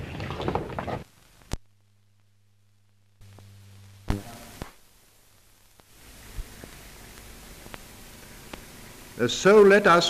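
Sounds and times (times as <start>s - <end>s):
low film hum: 1.0s - 10.0s
film clicks and pops: 1.3s - 1.7s, 5.7s - 8.8s.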